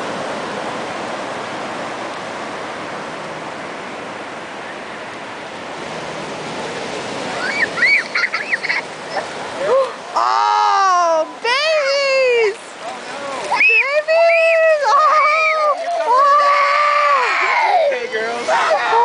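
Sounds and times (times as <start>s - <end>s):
ocean surf on beach: 0.0s - 19.0s
girls squealing: 7.4s - 9.3s, 13.5s - 17.9s.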